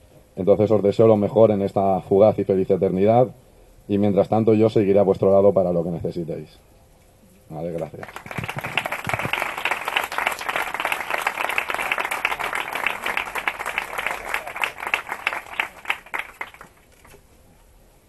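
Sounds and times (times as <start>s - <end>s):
audience applauding: 7.8s - 17.2s.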